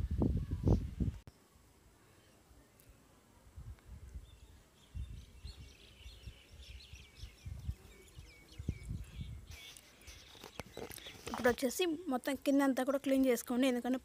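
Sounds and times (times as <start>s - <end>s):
bird chirping: 4.2s - 11.7s.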